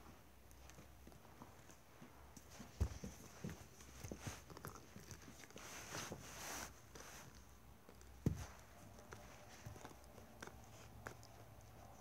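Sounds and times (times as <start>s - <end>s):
puppy rustling and scuffling: 0.0s - 12.0s.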